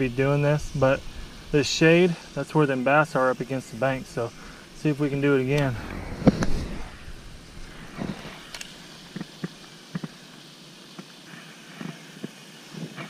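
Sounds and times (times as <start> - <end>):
light reel clicks: 5.4 - 6.6, 7.8 - 13.0.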